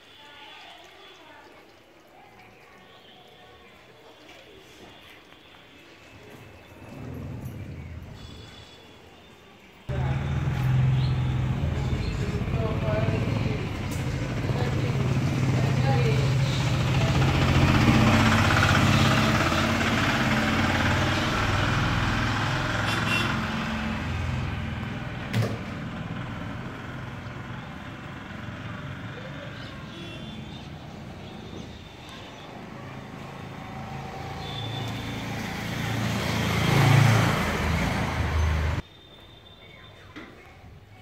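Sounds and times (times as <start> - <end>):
vehicle engine passing: 6.6 - 8.5, 9.9 - 38.8.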